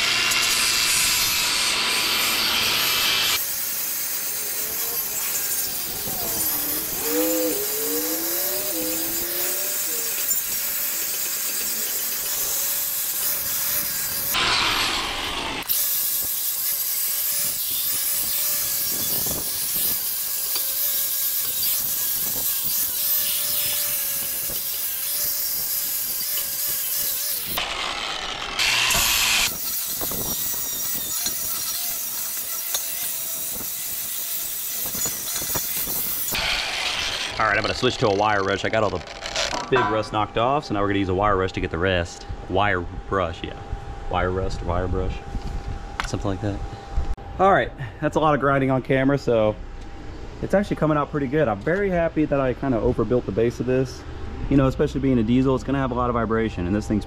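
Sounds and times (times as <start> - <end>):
angle grinder grinding metal: 0.0 - 40.4.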